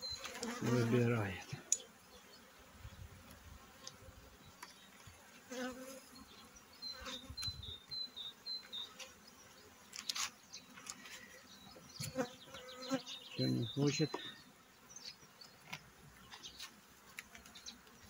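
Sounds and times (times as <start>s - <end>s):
honeybees buzzing: 0.0s - 18.0s
hive frames clicking and knocking: 15.6s - 18.0s.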